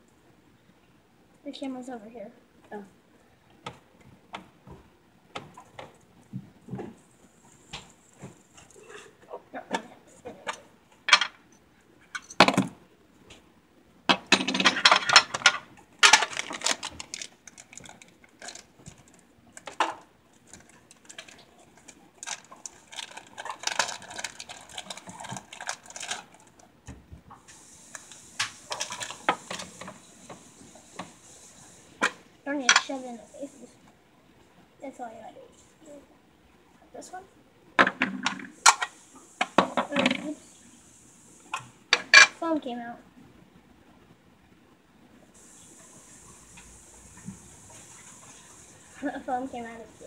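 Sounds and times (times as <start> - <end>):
plastic packaging crinkling: 16.0 - 19.8, 20.4 - 26.7, 27.9 - 29.8.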